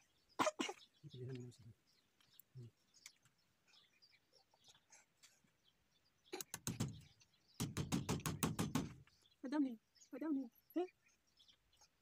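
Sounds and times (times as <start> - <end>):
hammer driving nails: 6.4 - 7.0, 7.6 - 9.0.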